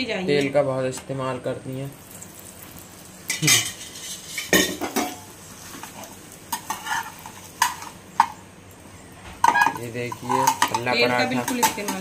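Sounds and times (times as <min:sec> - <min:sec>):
faint sizzle of frying: 0:00.0 - 0:12.0
metal spatula scraping a frying pan: 0:03.3 - 0:08.0, 0:09.4 - 0:12.0.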